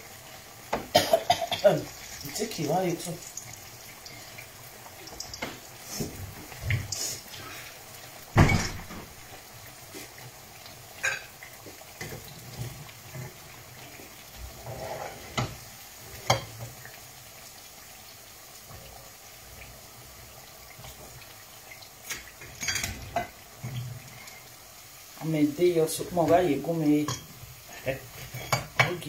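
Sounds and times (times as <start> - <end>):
food sizzling in hot oil: 0.0 - 29.0
utensils clinking on pan: 22.1 - 23.3, 28.2 - 29.0.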